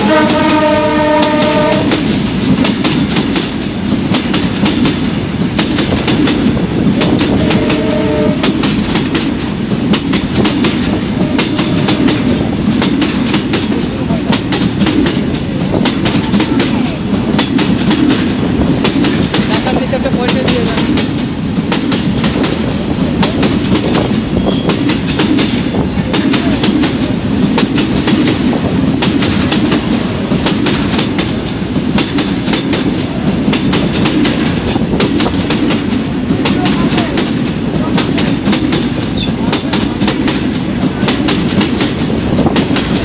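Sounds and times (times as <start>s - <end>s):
train wheels rumbling on rail: 0.0s - 43.0s.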